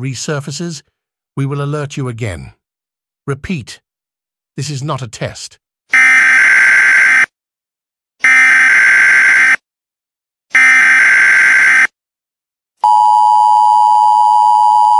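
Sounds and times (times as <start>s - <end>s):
two-tone attention signal: 12.8s - 14.9s.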